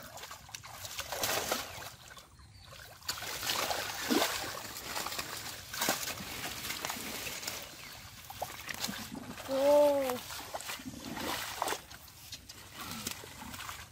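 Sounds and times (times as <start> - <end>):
muddy water splashing: 0.0 - 13.9.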